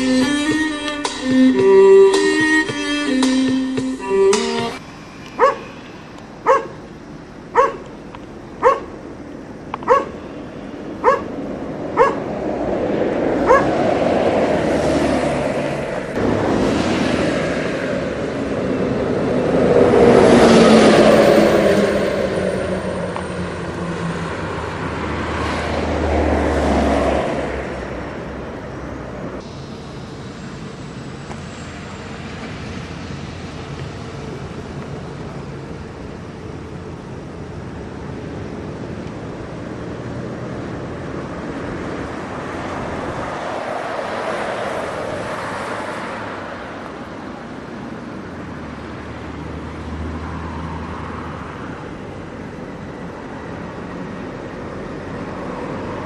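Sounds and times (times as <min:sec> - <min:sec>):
traffic passing: 0:00.0 - 0:56.0
dog barking: 0:05.4 - 0:05.7, 0:06.4 - 0:06.8, 0:07.5 - 0:07.9, 0:08.6 - 0:08.9, 0:09.8 - 0:10.2, 0:11.0 - 0:11.3, 0:12.0 - 0:12.3, 0:13.4 - 0:13.8.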